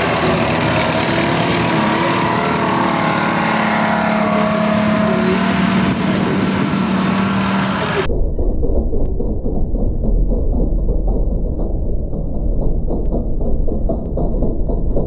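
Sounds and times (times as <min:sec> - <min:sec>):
tank engine running under load: 0:00.0 - 0:08.1.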